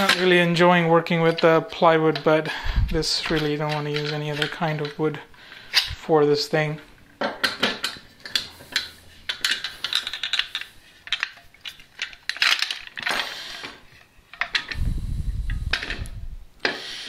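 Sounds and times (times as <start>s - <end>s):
metal clamp clinking and rattling: 3.0s - 5.0s, 7.4s - 13.2s.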